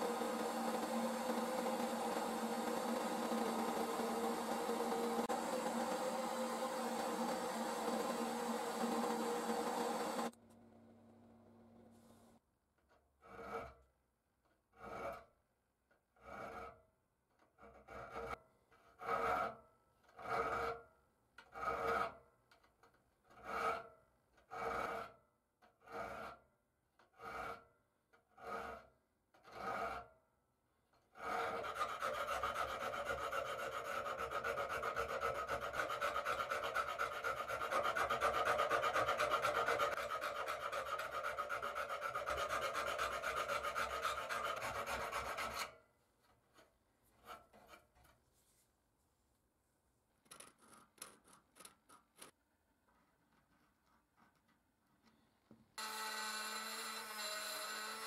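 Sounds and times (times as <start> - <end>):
file rasping on metal: 0.0 - 10.4, 13.2 - 13.9, 14.7 - 15.4, 16.2 - 16.8, 17.4 - 20.8, 21.5 - 22.2, 23.3 - 26.5, 27.1 - 30.1, 31.1 - 45.8, 55.8 - 58.0.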